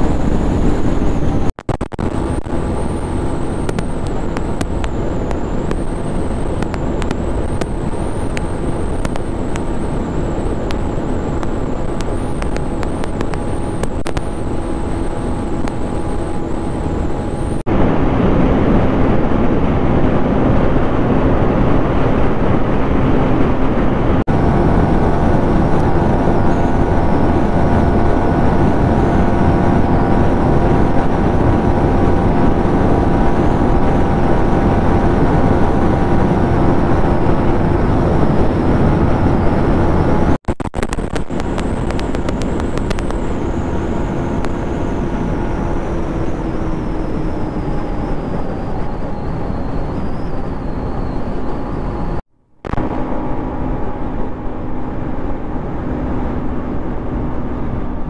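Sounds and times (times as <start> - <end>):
wind and road noise: 0.0 - 58.0.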